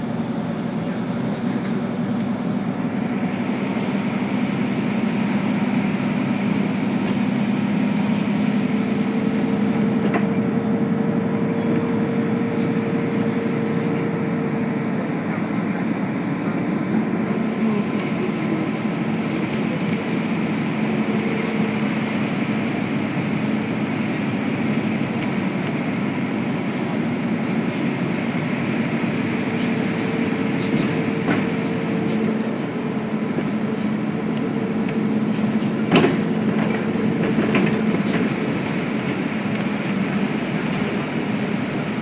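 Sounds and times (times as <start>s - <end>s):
bus engine drone: 0.0s - 42.0s
road and tyre rumble: 0.0s - 42.0s
knocks and rattles in cabin: 35.8s - 38.9s.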